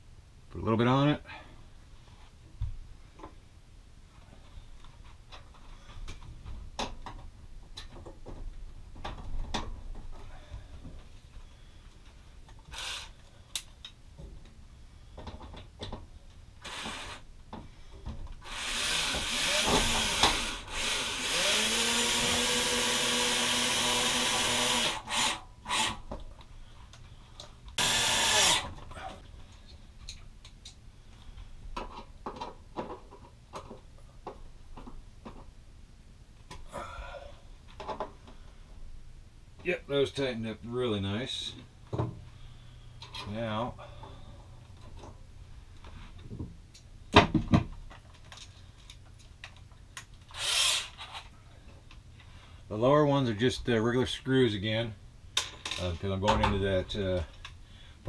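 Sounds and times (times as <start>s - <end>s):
cordless drill whining: 12.7s - 13.1s, 16.6s - 17.2s, 18.4s - 26.0s, 27.8s - 28.7s, 50.3s - 51.3s.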